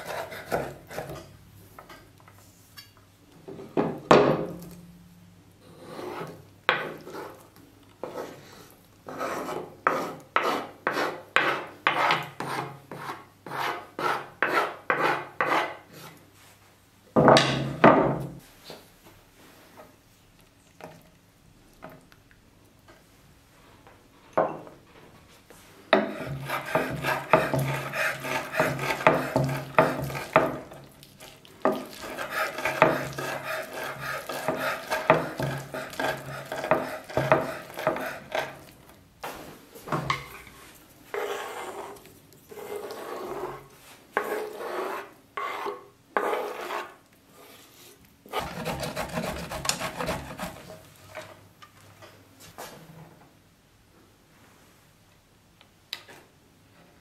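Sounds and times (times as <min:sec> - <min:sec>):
knife chopping on wooden board: 0:26.0 - 0:30.6, 0:31.7 - 0:38.6, 0:48.4 - 0:50.6
cheese rasping on metal grater: 0:26.1 - 0:30.4, 0:31.7 - 0:38.6, 0:48.3 - 0:50.7.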